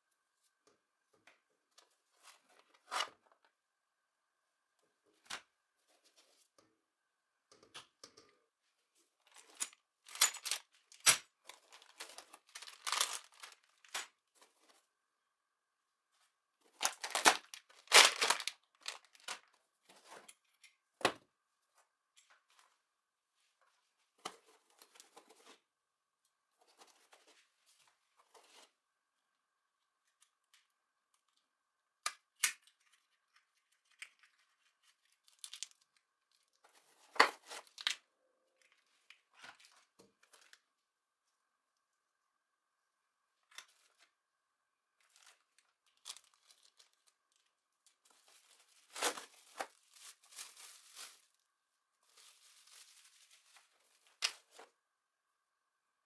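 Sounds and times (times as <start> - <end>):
packaging rustling and crinkling: 9.2 - 14.8, 16.7 - 20.3, 45.0 - 51.4, 52.0 - 54.7.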